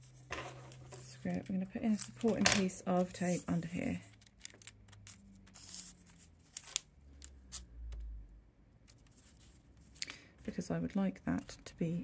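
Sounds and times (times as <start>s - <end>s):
tape rustling and ticking: 4.0s - 5.8s.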